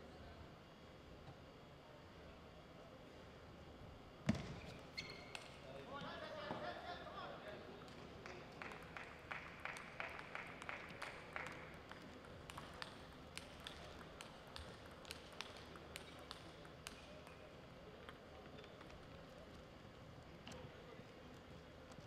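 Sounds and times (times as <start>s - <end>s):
taps and clicks in echoing hall: 4.3s - 6.2s, 7.8s - 22.0s
table tennis ball bouncing: 10.1s - 17.4s.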